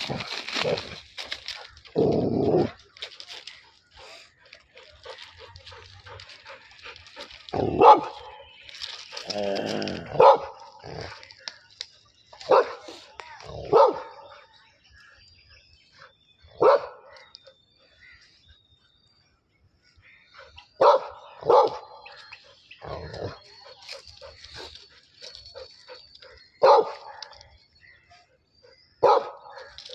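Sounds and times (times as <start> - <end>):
dog barking: 7.5 - 8.4, 10.1 - 11.1, 12.4 - 14.4, 16.6 - 17.2, 20.8 - 22.0, 26.6 - 27.3, 29.0 - 29.7.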